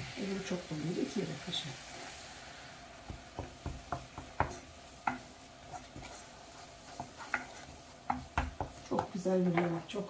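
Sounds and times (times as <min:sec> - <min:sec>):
hot fat sizzling: 0:00.0 - 0:10.0
wooden spoon scraping a pot: 0:03.7 - 0:10.0.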